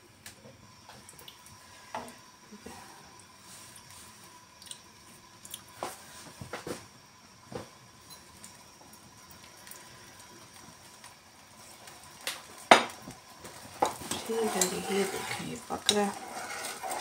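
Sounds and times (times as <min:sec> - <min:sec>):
sauce hissing in a pan: 0:01.4 - 0:17.0.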